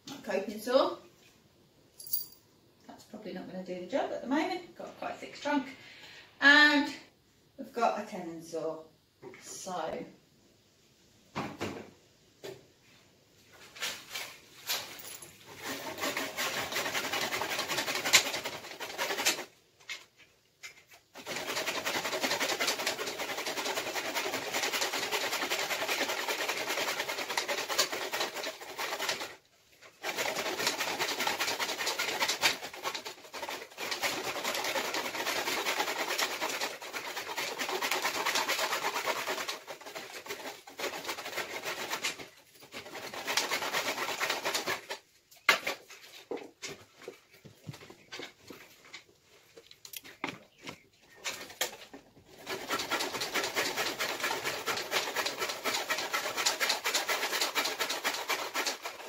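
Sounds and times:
saw cutting through branch: 15.5s - 19.5s, 21.2s - 45.8s, 51.4s - 59.0s.

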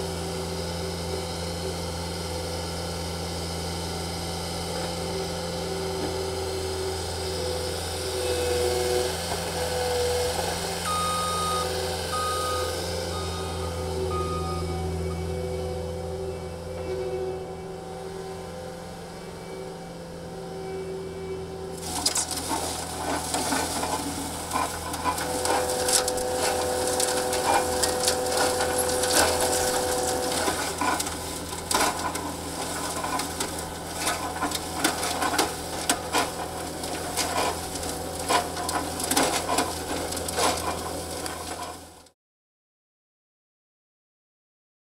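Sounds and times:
loader engine running: 0.0s - 42.1s
steady whine: 4.6s - 38.8s
soil and stones clattering in drum: 21.8s - 41.9s.

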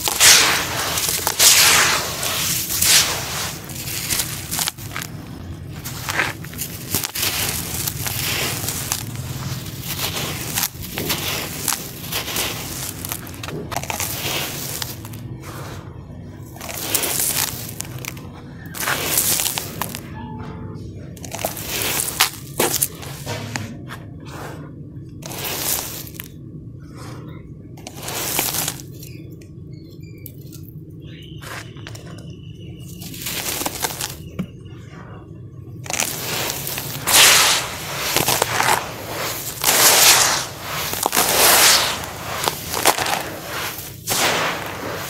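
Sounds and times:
small crackles: 0.0s - 15.3s, 16.5s - 20.1s, 21.2s - 23.0s, 25.2s - 26.4s, 27.8s - 34.5s, 35.8s - 45.0s
dry dirt crunching in hands: 0.0s - 15.7s, 16.6s - 20.0s, 25.2s - 26.3s, 27.8s - 29.1s, 32.8s - 34.4s, 35.9s - 45.0s
crumbs crushed in plastic basin: 0.0s - 15.8s, 16.4s - 20.1s, 21.2s - 23.7s, 25.2s - 26.4s, 27.8s - 29.2s, 32.8s - 34.5s, 35.8s - 45.0s.

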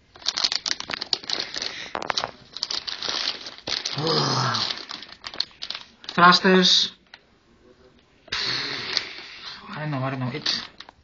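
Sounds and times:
plastic bags crinkling: 0.0s - 7.2s.

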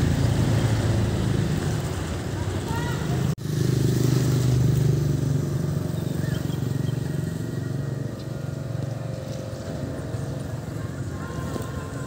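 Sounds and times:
outboard motor droning: 3.9s - 12.0s.

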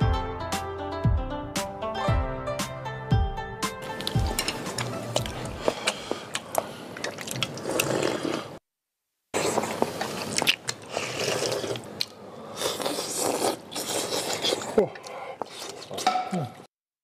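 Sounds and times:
people slurping and chewing: 3.8s - 8.6s, 9.3s - 16.7s.

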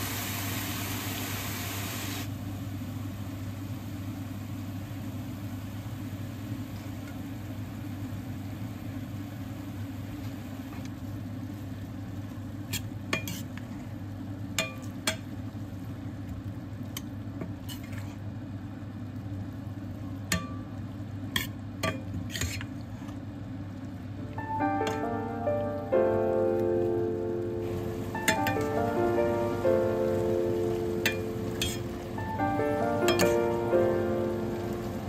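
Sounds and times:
food sizzling: 0.0s - 7.5s, 24.3s - 35.0s
steady low hum: 2.3s - 35.0s
metal spoon scraping pot: 22.3s - 22.7s.

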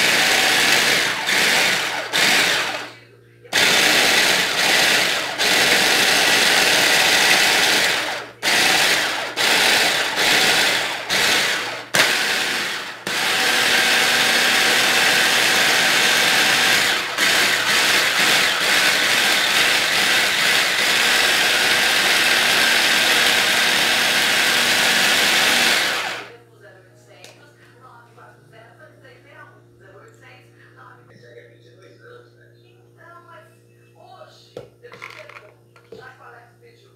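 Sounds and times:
blade grinding coconut: 0.0s - 2.9s, 3.5s - 26.3s
stick blender motor: 0.0s - 2.9s, 3.5s - 26.3s.

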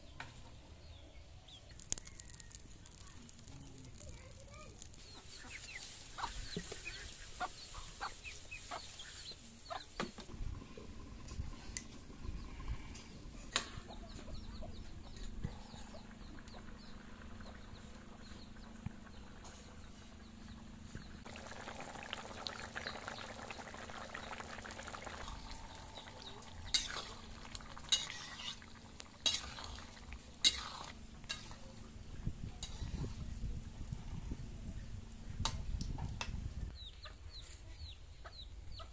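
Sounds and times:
frying sizzle: 1.7s - 10.3s, 21.2s - 32.0s
spatula scraping vegetables in pan: 26.7s - 31.7s, 32.6s - 33.3s.

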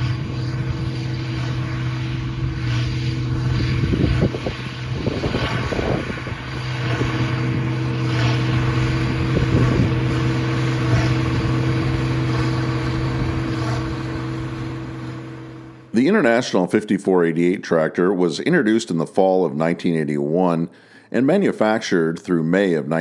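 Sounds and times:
tractor engine hum: 0.0s - 16.9s
baler machinery surges: 0.0s - 17.5s.

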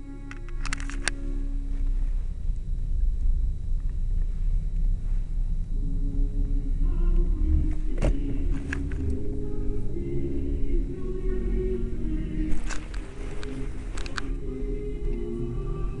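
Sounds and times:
faint music: 0.0s - 16.0s
low rumble inside car: 0.0s - 16.0s
sharp clicks: 12.7s - 14.3s.

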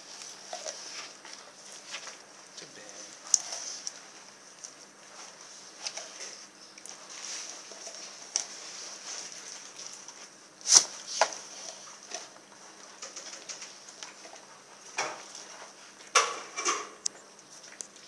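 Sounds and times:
dog chewing bone: 0.2s - 2.3s, 3.1s - 8.6s.

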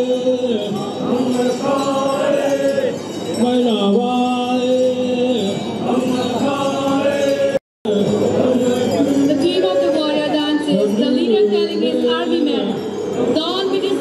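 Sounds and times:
voices chanting long notes: 0.9s - 3.4s, 5.6s - 11.0s.

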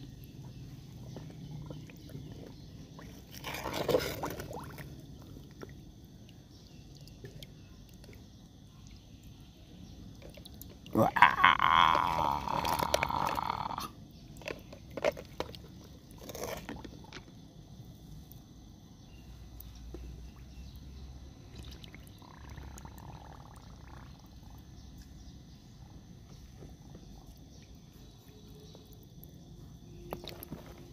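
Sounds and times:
faint outdoor background: 0.0s - 30.9s
splashes in muddy water: 3.0s - 5.3s.

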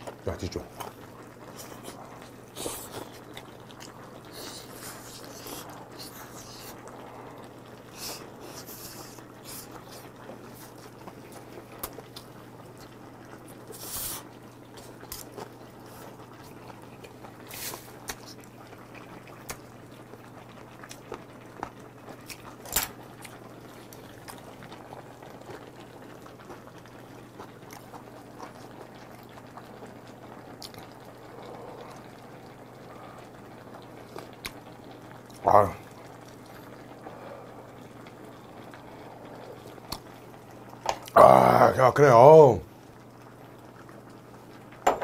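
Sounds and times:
slurping: 0.8s - 19.6s
man sucking and chewing meat: 0.8s - 19.7s.

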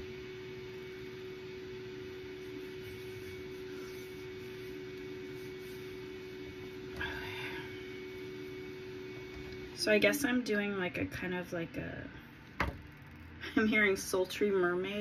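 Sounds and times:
low hum: 0.0s - 13.6s
electric fan whirring: 0.0s - 15.0s.

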